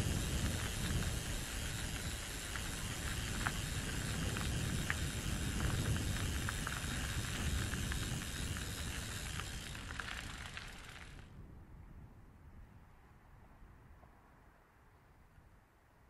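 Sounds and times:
small ticks: 0.0s - 11.2s
wind rumble on microphone: 0.0s - 15.8s.

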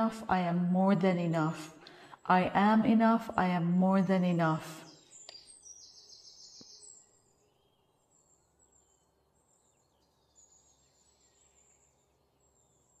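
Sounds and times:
faint high bird chirping: 4.8s - 13.0s.

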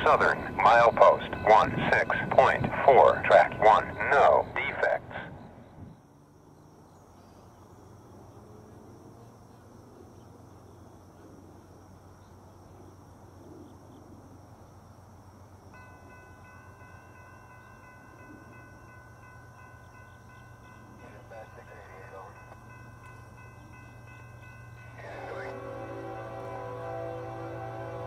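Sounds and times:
distant locomotive horn: 24.9s - 28.0s.

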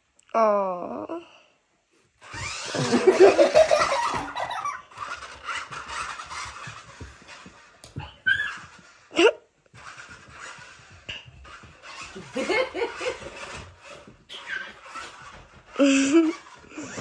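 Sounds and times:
laughter: 2.7s - 4.9s, 12.2s - 13.3s
short high squeals: 5.5s - 11.2s, 14.3s - 15.3s.

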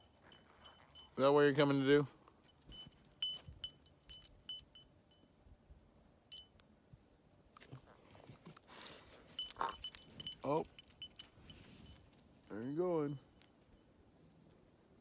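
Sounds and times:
dog collar tag jingling: 0.0s - 5.3s, 9.2s - 12.3s.

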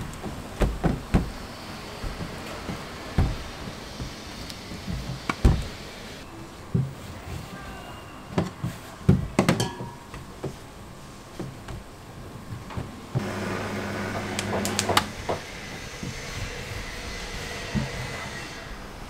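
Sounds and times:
dough sheeter motor humming: 13.0s - 19.0s.

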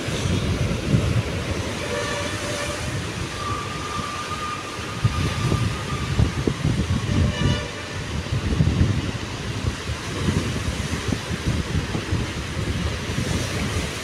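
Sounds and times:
wind buffeting microphone: 0.0s - 14.0s
distant train horn: 1.6s - 6.3s, 6.9s - 8.2s.

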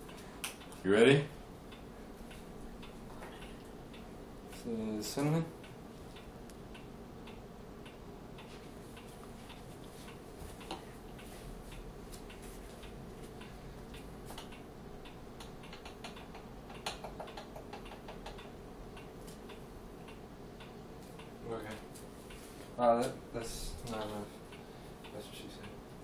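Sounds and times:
low steady hum: 0.0s - 26.0s
utensils clicking and tapping: 8.4s - 25.8s.

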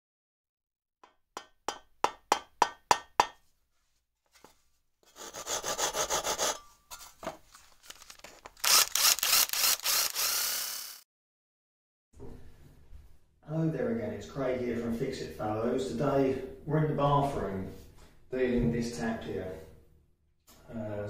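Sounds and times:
hand saw cutting wood: 5.0s - 6.7s, 8.6s - 11.0s.

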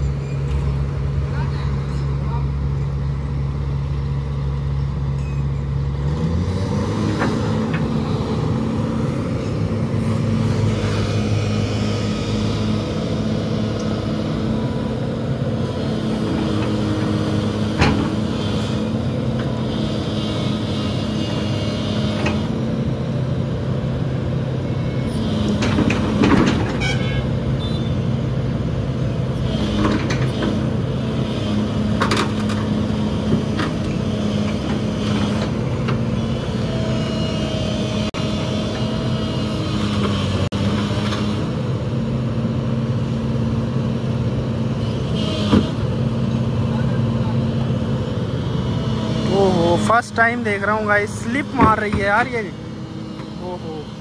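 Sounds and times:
excavator diesel engine running: 0.0s - 54.0s
steel tracks knocking and clanking: 25.4s - 27.3s.

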